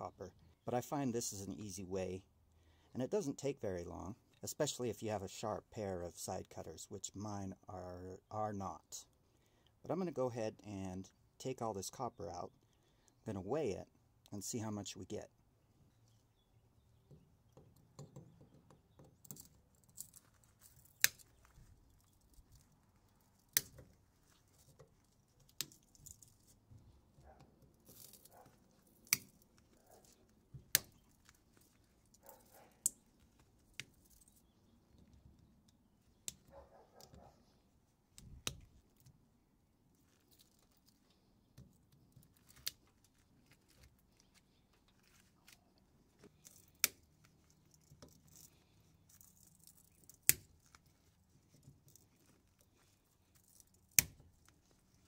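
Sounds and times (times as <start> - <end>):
wire scraping and handling: 17.0 - 55.0
side cutters snipping copper wire: 50.0 - 50.8, 53.9 - 54.2.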